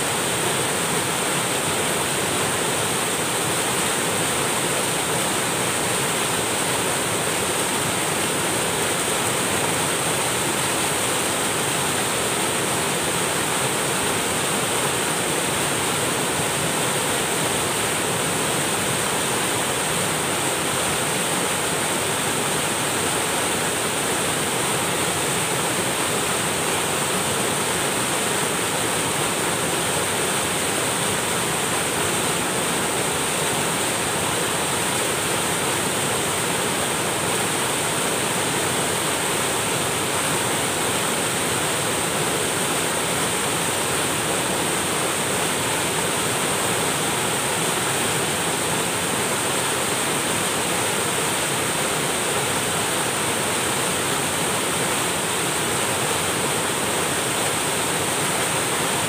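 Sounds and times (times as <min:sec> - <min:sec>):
waterfall rushing over boulders: 0:00.0 - 0:59.0.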